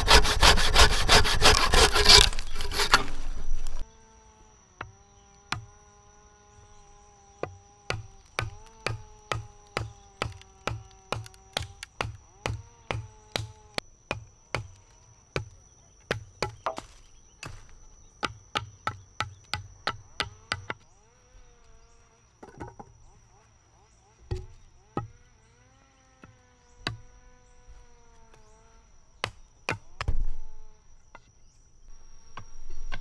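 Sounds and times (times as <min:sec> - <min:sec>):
machete chopping wood: 0:00.0 - 0:03.8, 0:07.4 - 0:14.8, 0:15.4 - 0:20.8, 0:24.3 - 0:25.1, 0:29.2 - 0:30.3
insect buzzing: 0:00.0 - 0:33.0.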